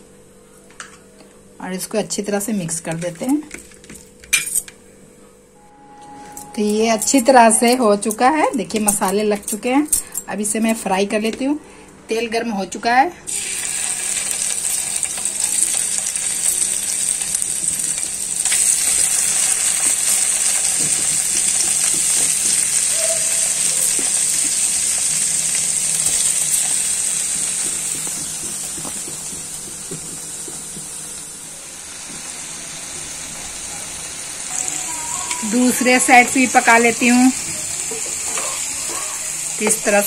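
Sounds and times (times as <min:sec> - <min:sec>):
paneer sizzling in hot oil: 0:13.3 - 0:40.0.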